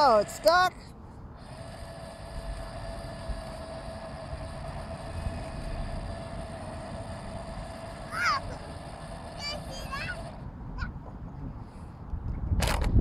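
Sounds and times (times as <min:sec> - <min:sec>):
toy car motor whining: 0:00.0 - 0:00.7, 0:01.4 - 0:10.4
wind rumbling on microphone: 0:01.3 - 0:07.9, 0:10.2 - 0:13.0.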